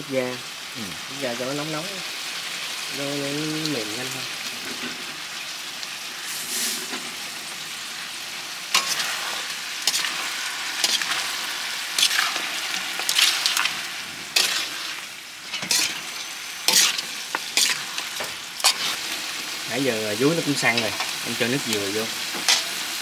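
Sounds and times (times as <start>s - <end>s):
meat sizzling in a pot: 0.0s - 23.0s
stirring scrape: 8.7s - 19.6s, 22.4s - 22.9s.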